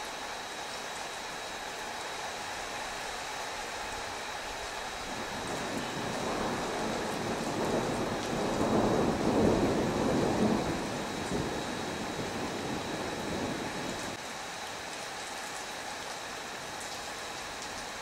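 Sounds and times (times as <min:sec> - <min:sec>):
steady rain: 0:00.0 - 0:18.0
rolling thunder: 0:05.2 - 0:14.2.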